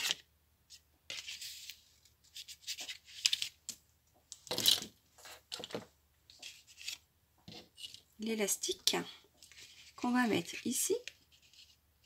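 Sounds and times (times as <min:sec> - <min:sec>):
cardstock rustling and scraping: 0:01.1 - 0:03.6, 0:04.5 - 0:08.1, 0:09.4 - 0:11.8.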